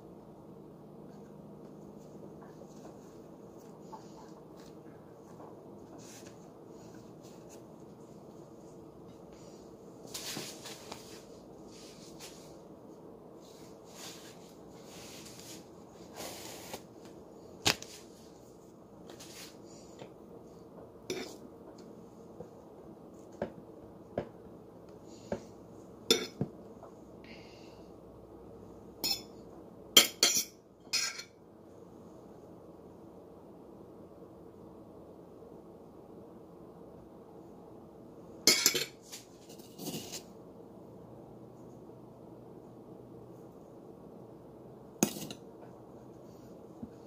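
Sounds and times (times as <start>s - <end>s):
soft rustling: 1.0s - 12.7s, 13.4s - 19.9s
metal fork clinking on dishes: 26.1s - 26.4s, 29.0s - 29.3s, 30.0s - 31.3s, 38.5s - 39.0s.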